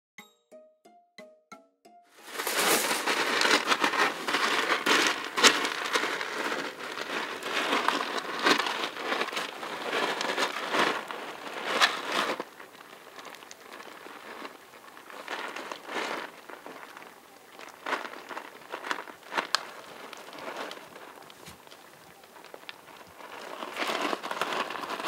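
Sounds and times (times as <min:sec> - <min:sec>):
kitten scratching in cat litter: 0:02.2 - 0:11.1
faint rustling: 0:02.2 - 0:25.0.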